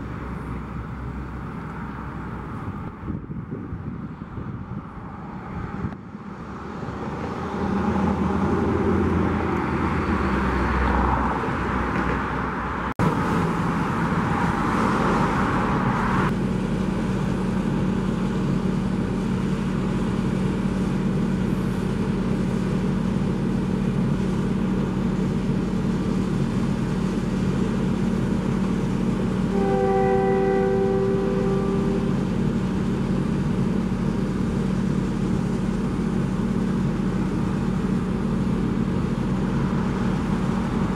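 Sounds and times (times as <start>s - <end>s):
low engine hum: 0.0s - 40.9s
road traffic passing: 0.0s - 40.9s
locomotive chime horn: 29.5s - 32.5s.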